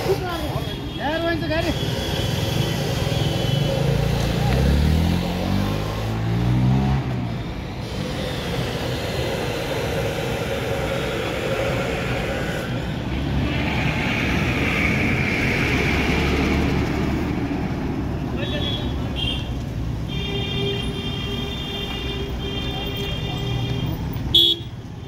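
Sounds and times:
street traffic: 0.0s - 25.0s
truck passing rumble: 3.8s - 18.4s.

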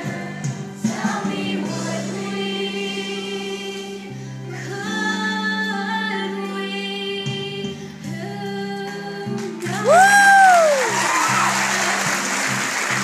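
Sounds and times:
children's choir singing: 0.0s - 5.2s
sustained musical accompaniment: 0.0s - 13.0s.

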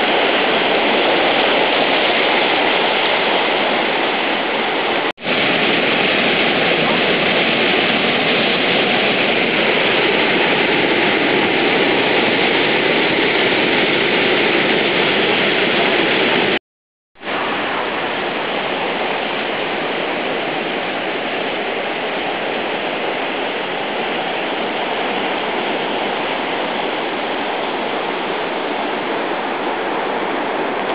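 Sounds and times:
river rushing over a weir: 0.0s - 16.6s, 17.2s - 30.9s.

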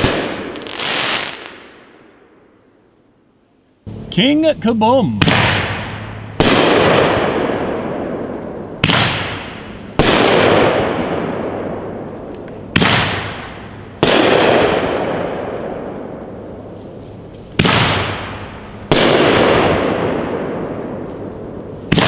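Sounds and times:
firework bangs with rumble: 0.0s - 1.7s, 5.2s - 16.3s, 17.5s - 22.0s.

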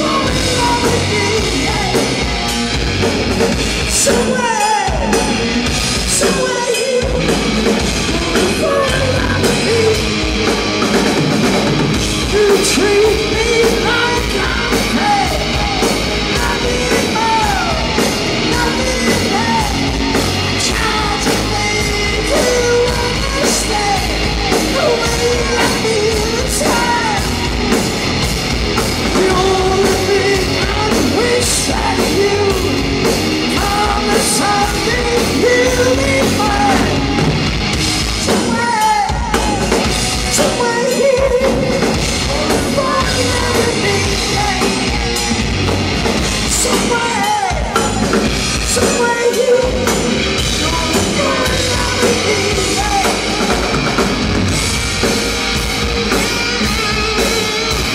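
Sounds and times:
singer: 0.0s - 2.5s, 3.8s - 10.6s, 12.1s - 27.8s, 29.0s - 54.6s, 56.1s - 57.9s
bass guitar: 0.0s - 57.9s
drum kit: 0.0s - 57.9s
electric guitars: 0.0s - 57.9s.

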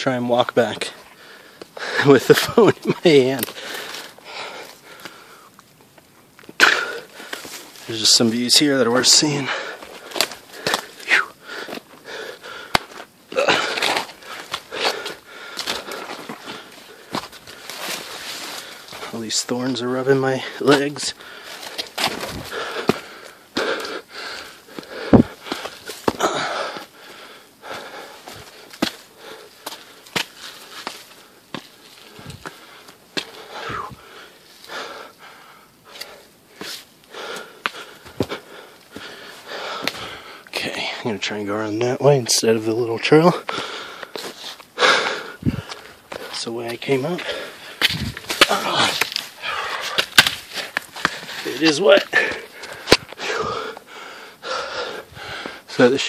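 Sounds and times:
footsteps on a trail: 0.4s - 41.0s, 42.6s - 56.0s
person breathing hard: 1.0s - 2.2s, 3.5s - 5.6s, 6.6s - 7.6s, 9.3s - 19.2s, 20.4s - 41.0s, 43.4s - 46.4s, 47.1s - 55.7s
branches scraping past legs: 6.7s - 35.0s, 35.9s - 40.3s, 43.4s - 53.6s.

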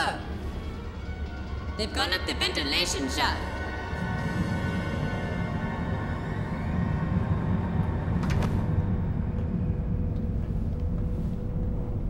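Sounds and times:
deep mechanical rumble: 3.4s - 12.0s.

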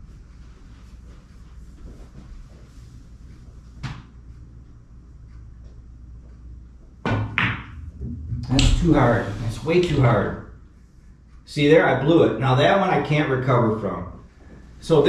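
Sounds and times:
pool cue striking cue ball: 7.0s - 10.2s.

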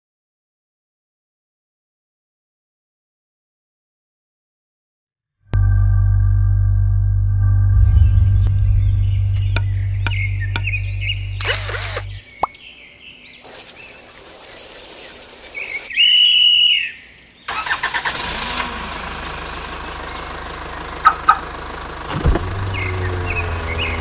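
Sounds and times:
car engine running: 5.6s - 12.2s, 17.7s - 24.0s.

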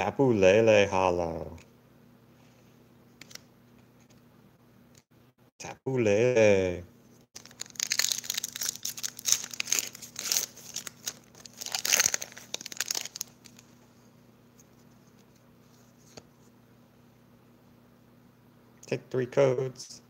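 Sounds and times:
foil wrapper crinkling and tearing: 7.4s - 13.7s.

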